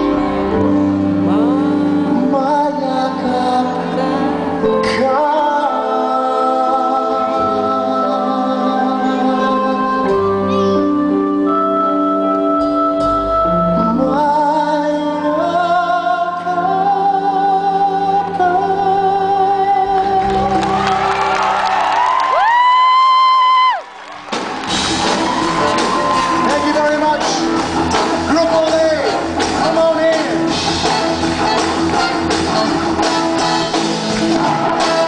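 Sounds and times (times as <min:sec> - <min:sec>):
amplified rock band playing: 0:00.0 - 0:06.1, 0:07.2 - 0:15.1, 0:24.2 - 0:35.0
man singing with vibrato: 0:00.0 - 0:20.7.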